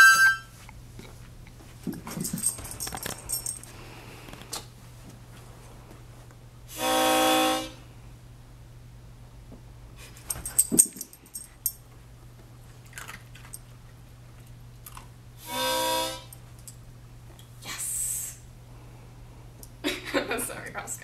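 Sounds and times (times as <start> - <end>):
harmonica low note: 0.0 - 0.6, 6.7 - 7.8, 15.4 - 16.3
metallic jingling and clicks: 1.9 - 3.7, 10.2 - 11.8.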